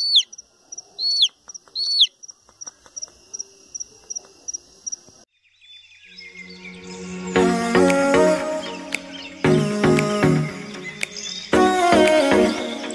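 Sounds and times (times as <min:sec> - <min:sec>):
chick peeping: 0:00.0 - 0:05.0
insect chirping: 0:00.0 - 0:07.8.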